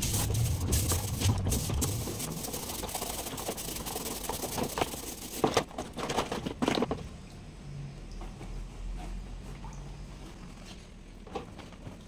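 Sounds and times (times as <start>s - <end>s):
scratchy scrubbing of plastic: 0.0s - 6.6s
plastic clattering: 2.8s - 7.1s.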